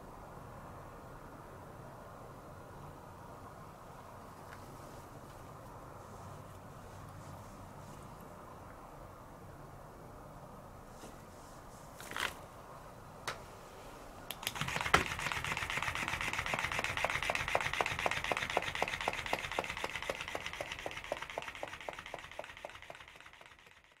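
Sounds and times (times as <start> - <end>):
toy tail flapping ticking: 14.3 - 24.0
small motor whirring: 14.4 - 24.0.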